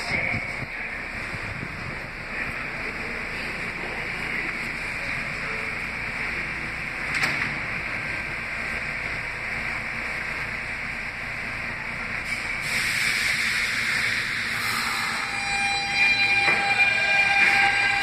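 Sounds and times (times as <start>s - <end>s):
train ventilation hiss: 0.0s - 18.0s
train doors knocking shut: 16.3s - 18.0s.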